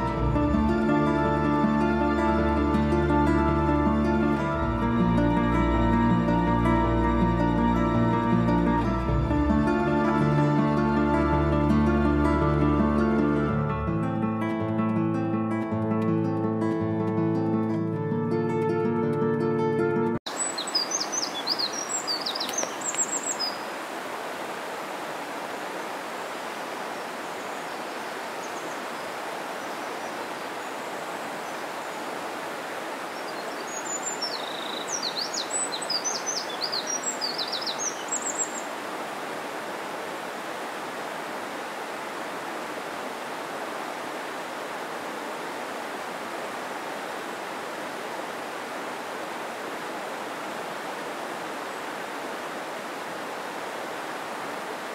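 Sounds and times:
songbird chirping: 0:00.0 - 0:13.5, 0:18.8 - 0:23.9, 0:26.7 - 0:32.3, 0:32.9 - 0:39.8
mountain stream rushing: 0:00.0 - 0:18.7, 0:20.2 - 0:54.9.

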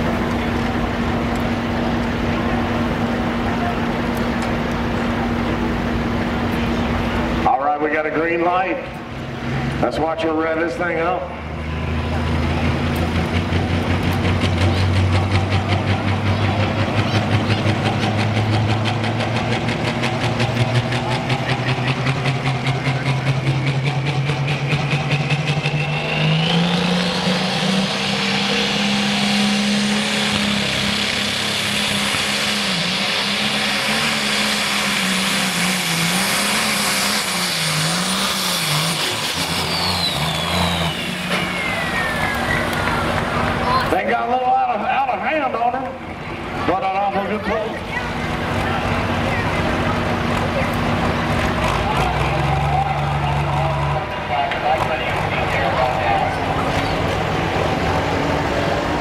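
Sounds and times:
diesel tractor engine revving: 0:00.0 - 0:59.0
turbo whine: 0:20.2 - 0:44.0.

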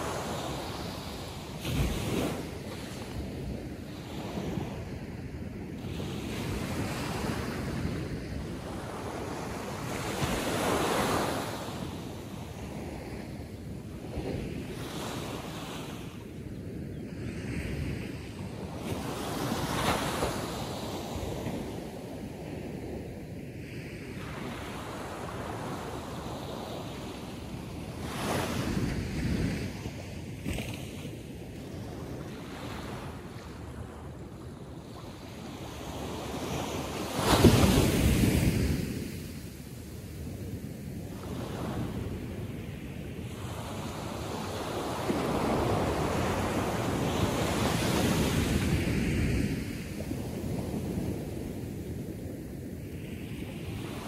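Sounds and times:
surf breaking on a beach: 0:00.0 - 0:16.4, 0:17.0 - 0:54.0.

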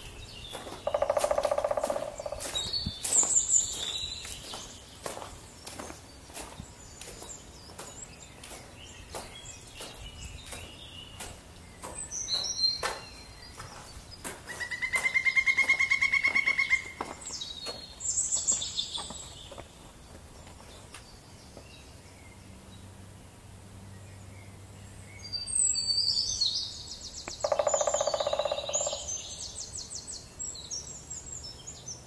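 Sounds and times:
footsteps on snow: 0:00.0 - 0:21.8
songbirds calling: 0:00.0 - 0:32.0
rapid bird trill: 0:00.6 - 0:03.9, 0:27.3 - 0:29.2.

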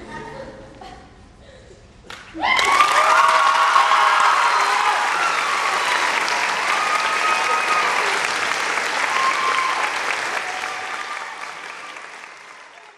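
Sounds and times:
audience applauding: 0:02.1 - 0:12.9.

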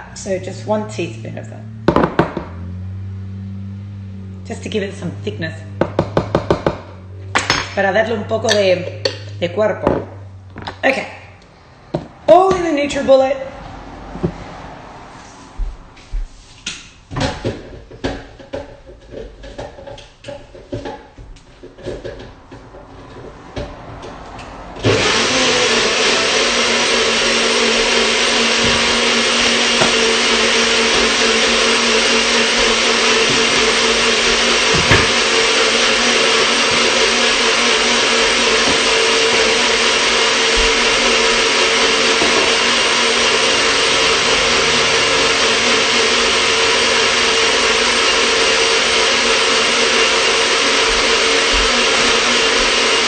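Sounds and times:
blender motor whirring: 0:00.0 - 0:07.5, 0:08.2 - 0:10.8, 0:24.8 - 0:53.0.

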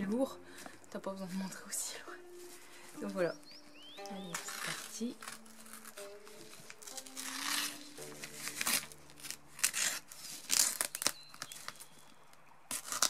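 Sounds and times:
bubble wrap crinkling: 0:00.0 - 0:13.0
packing tape ripping: 0:04.3 - 0:12.0, 0:12.7 - 0:13.0.

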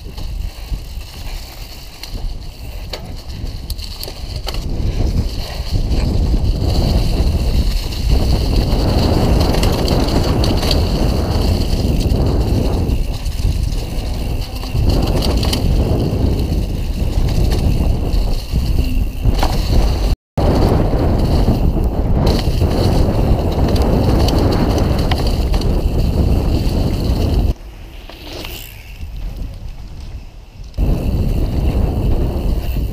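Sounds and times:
wind rushing over microphone: 0:00.0 - 0:27.8, 0:28.5 - 0:32.9
bike tyre noise and rattling: 0:00.0 - 0:32.9.

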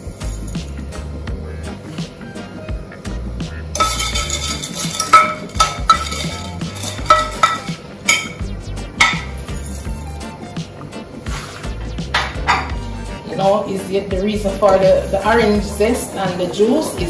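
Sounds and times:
spoon clinking against pot: 0:03.8 - 0:08.4, 0:09.0 - 0:09.5, 0:12.2 - 0:12.8.

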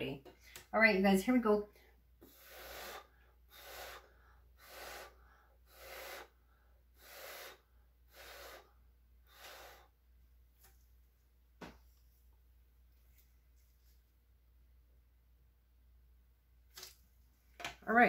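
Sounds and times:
short puffs of breath: 0:02.2 - 0:10.0.

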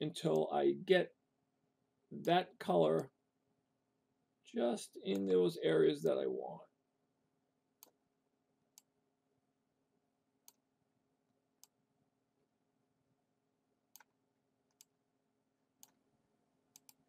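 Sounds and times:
faint computer mouse clicks: 0:16.7 - 0:17.0.

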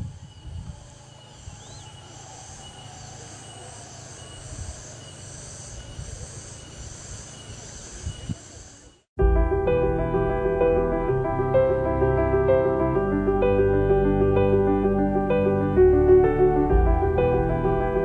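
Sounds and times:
wind rumble on microphone: 0:00.0 - 0:01.7
insects buzzing shrilly: 0:00.0 - 0:09.0.

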